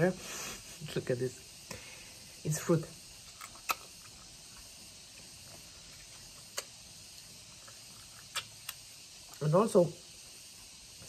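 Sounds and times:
steady high hiss: 0.0s - 11.0s
wet mouth clicks and smacks: 3.2s - 4.3s, 6.1s - 6.8s, 7.6s - 9.4s.

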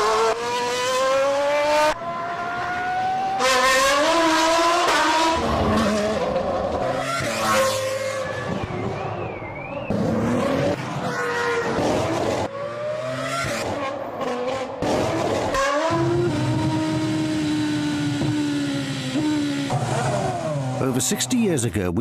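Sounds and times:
racing car engine revving: 0.0s - 9.0s.

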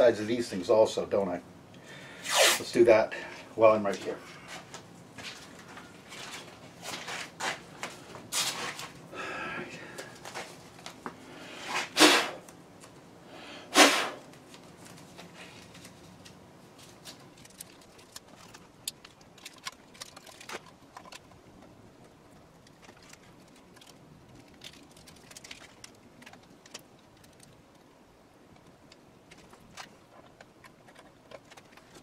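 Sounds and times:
tape ripping off roll: 2.2s - 2.7s, 11.6s - 12.4s, 13.7s - 14.3s.

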